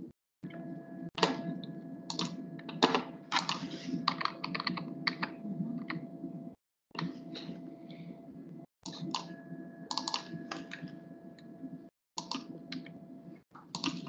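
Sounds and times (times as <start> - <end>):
steady low hum: 0.0 - 14.0
keyboard typing and clicks: 0.5 - 6.1, 8.9 - 11.5, 12.2 - 13.0, 13.6 - 14.0.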